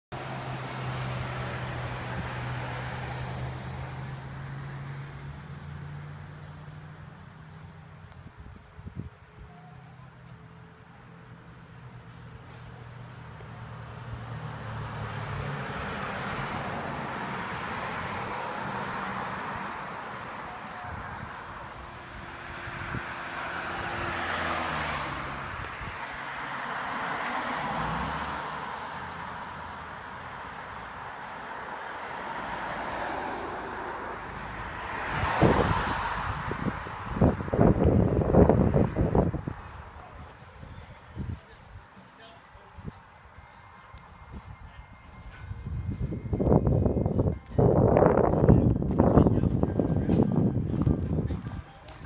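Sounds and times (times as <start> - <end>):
cars passing on road: 0.1 - 52.0
vehicle driving past: 0.2 - 8.0, 11.3 - 40.3.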